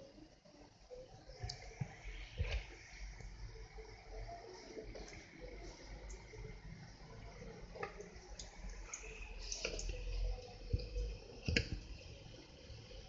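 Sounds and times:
oil popping: 7.7s - 12.2s.

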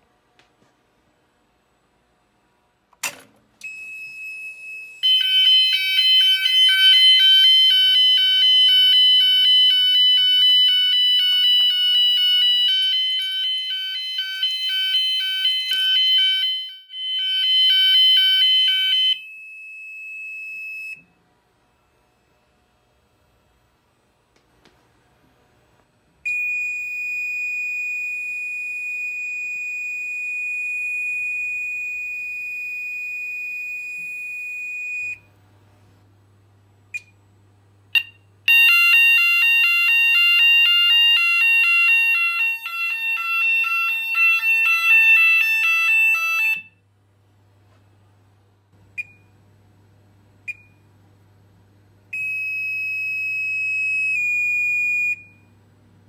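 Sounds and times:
fast-pulsing fire alarm tone: 3.7s - 20.9s, 38.5s - 46.8s.

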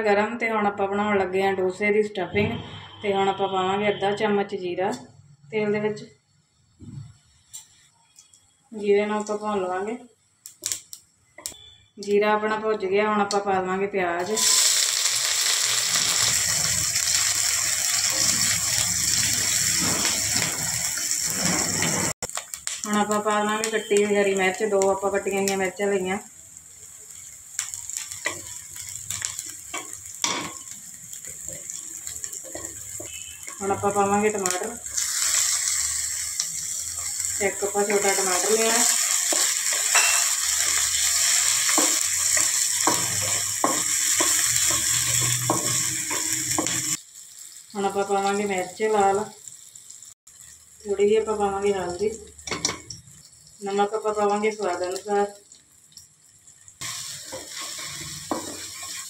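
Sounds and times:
onions sizzling in hot oil: 7.1s - 59.0s
wooden spatula scraping pan: 21.3s - 22.2s.

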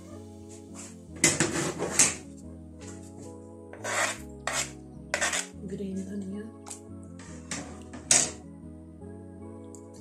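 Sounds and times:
background music: 0.0s - 10.0s
wooden spoon scraping metal pot: 0.5s - 5.7s, 7.2s - 8.4s.

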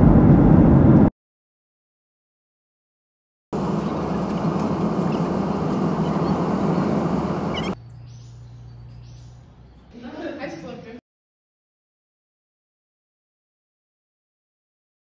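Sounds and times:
jet engine and air rush: 0.0s - 1.1s, 3.6s - 7.8s.

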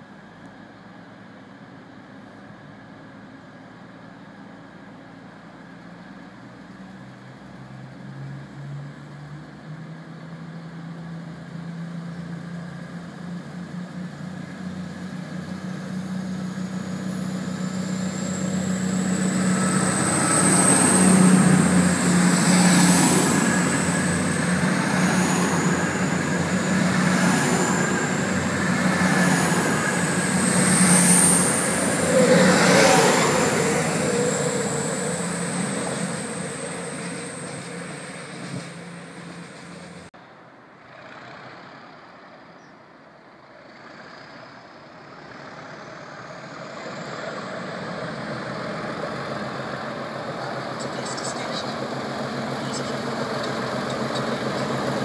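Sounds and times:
train engine drone: 0.0s - 55.0s
high whine: 12.1s - 40.1s.

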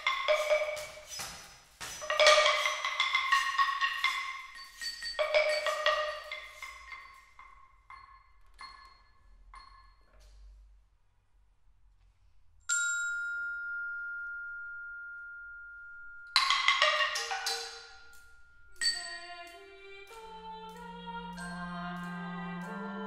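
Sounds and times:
ringing metal and glass strikes: 0.0s - 10.1s, 12.7s - 20.2s.

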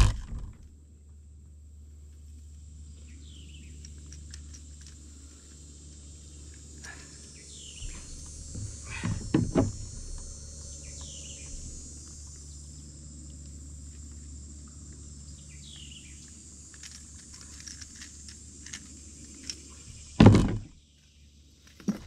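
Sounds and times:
loud thump: 0.0s - 0.6s, 7.8s - 10.3s, 20.2s - 20.8s
steady low rumble: 0.0s - 20.9s.

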